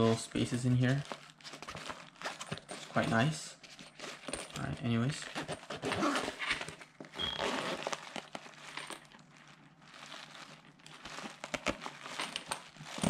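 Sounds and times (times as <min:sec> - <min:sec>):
fabric rustling: 0:00.6 - 0:04.4, 0:05.2 - 0:13.0
zipper rasp: 0:05.4 - 0:07.9.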